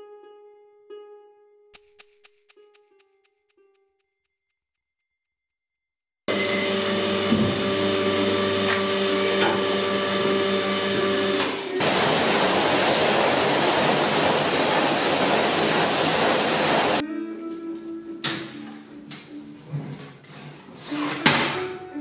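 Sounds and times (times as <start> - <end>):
high-pressure water jet hissing: 6.3 - 17.0
machine hum: 6.3 - 17.0.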